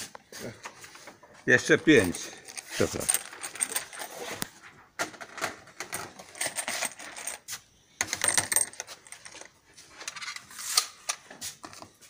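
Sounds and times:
metal cartridges clinking on wood: 1.5 - 10.5.

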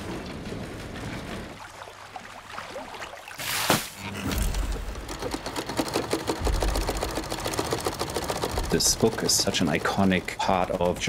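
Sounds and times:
sewing machine rattling: 4.7 - 11.0.

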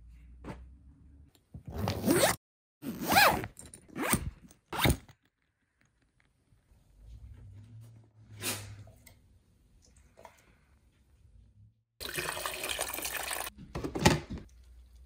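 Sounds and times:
luggage zippers being zipped: 1.7 - 5.2.

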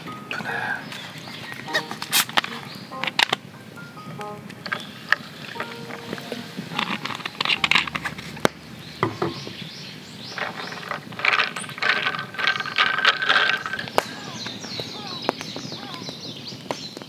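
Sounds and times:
bubbles fizzing and crackling: 4.6 - 14.6
ice clicking against glass: 10.4 - 14.0.

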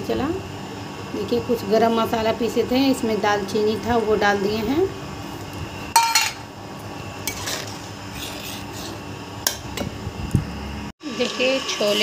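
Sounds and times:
metal spoon scraping a pot: 7.3 - 9.0.

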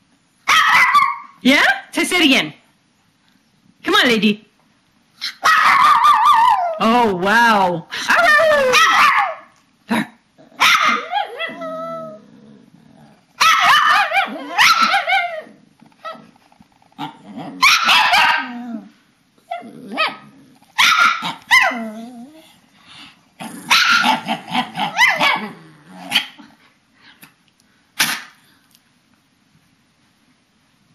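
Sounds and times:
dog yowling and grumbling: 5.2 - 22.6, 23.4 - 26.6.

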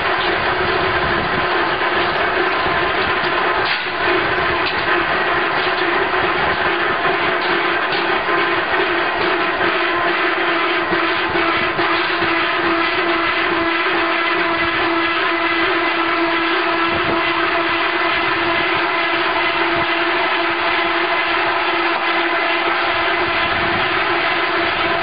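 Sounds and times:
machine motor hum: 0.0 - 25.0.

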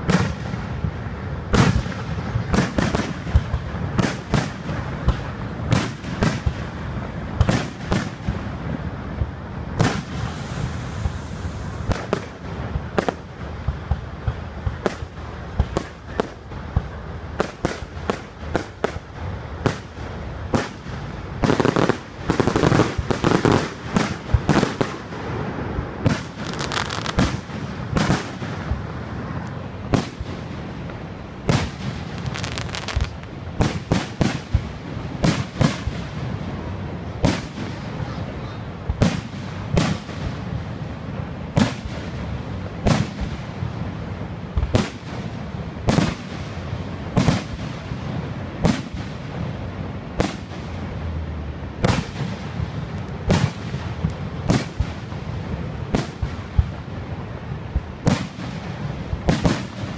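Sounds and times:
firework shells bursting: 31.5 - 36.2.

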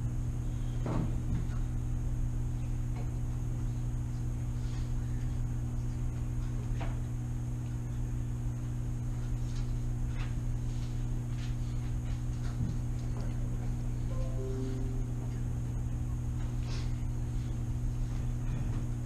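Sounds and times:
low room hum: 0.0 - 19.0
faint high whine: 14.1 - 16.2.

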